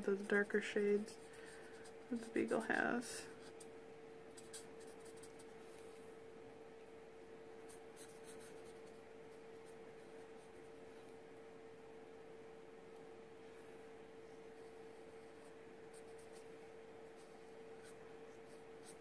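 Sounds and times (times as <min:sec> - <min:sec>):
faint steady hum: 0:00.0 - 0:19.0
marker scratching on card: 0:04.3 - 0:05.5, 0:07.7 - 0:09.0, 0:17.2 - 0:19.0.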